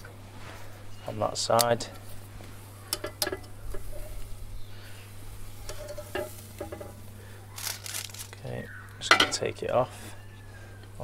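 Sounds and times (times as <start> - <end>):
steak sizzling on a grill: 2.5 - 8.3.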